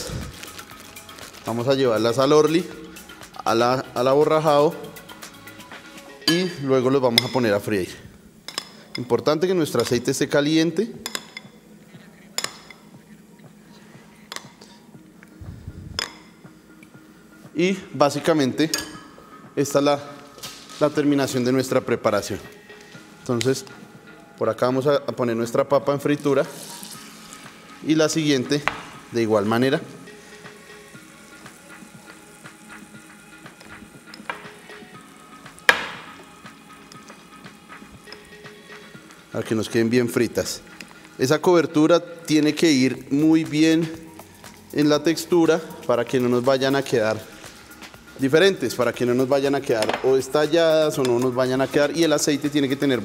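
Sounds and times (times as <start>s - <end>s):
food sizzling in hot oil: 0.0s - 1.6s, 20.2s - 21.0s, 26.4s - 39.4s.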